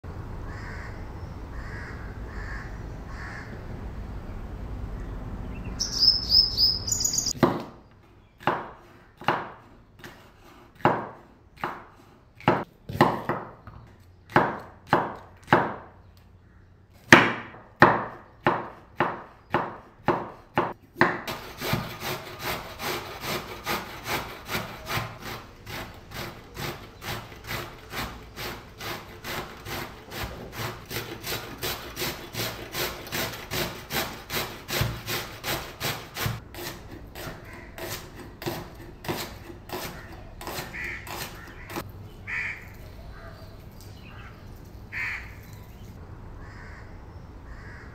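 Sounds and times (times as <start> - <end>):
high chirps: 5.6 - 7.4
knife chopping on cutting board: 8.4 - 13.6, 23.3 - 41.8
vegetable scraping on metal grater: 21.3 - 41.9.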